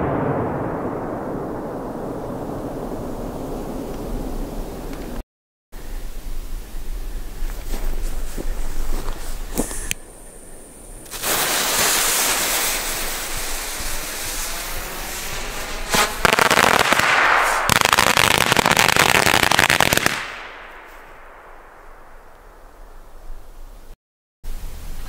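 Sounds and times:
firework rushing hiss: 8.0s - 20.4s
firework crackling: 8.0s - 22.7s.

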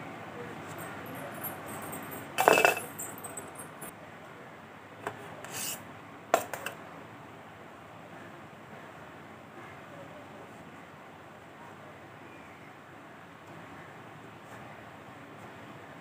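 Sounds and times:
sharp clinks: 0.8s - 3.9s
metal utensil clattering: 2.4s - 3.2s
light scrape: 5.4s - 5.8s.

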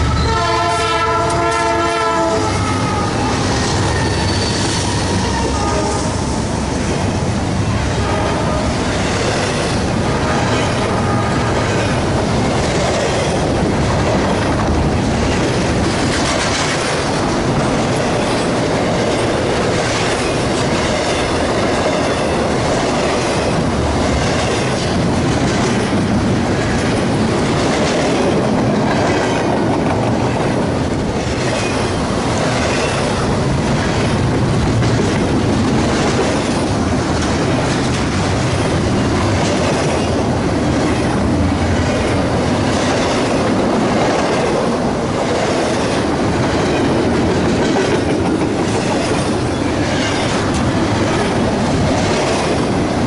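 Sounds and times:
train wheels clattering on track: 0.0s - 53.0s
train wheel squeal: 2.5s - 6.3s, 48.8s - 50.4s.

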